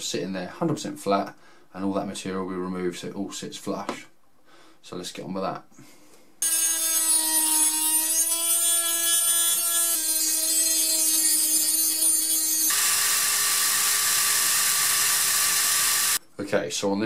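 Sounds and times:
drill boring through metal: 0:06.4 - 0:16.2
rotary tool grinding metal: 0:06.4 - 0:16.2.

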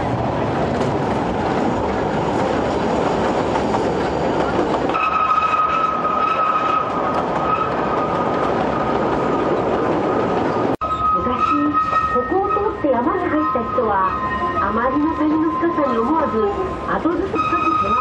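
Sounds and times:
train rumbling and rattling: 0:00.0 - 0:18.0
high-pitched wheel squeal: 0:04.9 - 0:08.1, 0:10.8 - 0:16.1, 0:17.2 - 0:18.0.

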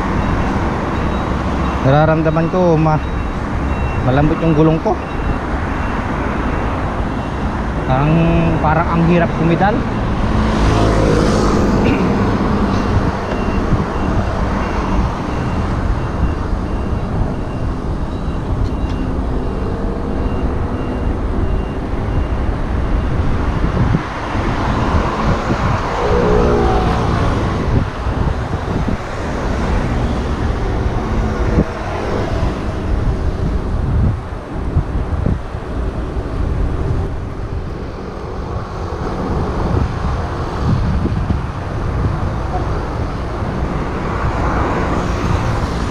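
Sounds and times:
road traffic passing: 0:00.0 - 0:45.9
wind buffeting microphone: 0:09.9 - 0:45.9
pitched hum: 0:25.6 - 0:28.0.

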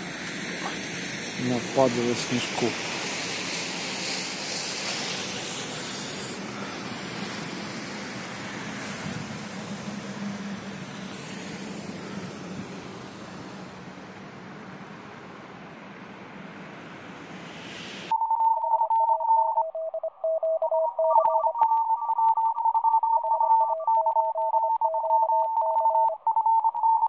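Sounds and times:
road traffic noise: 0:00.0 - 0:18.1
electronic beep tones: 0:18.1 - 0:27.0.

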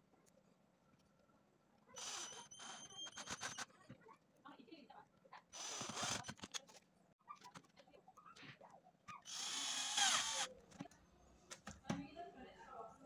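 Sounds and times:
cordless drill running: 0:02.0 - 0:03.6, 0:05.6 - 0:06.6, 0:09.3 - 0:10.5.

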